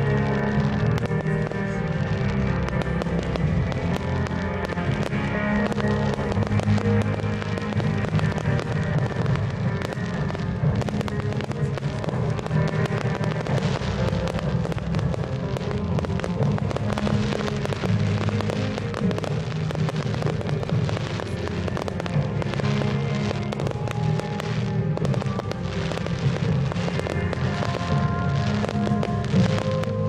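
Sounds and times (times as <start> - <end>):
fireworks popping and crackling: 0.0 - 30.0
music playing: 0.0 - 30.0.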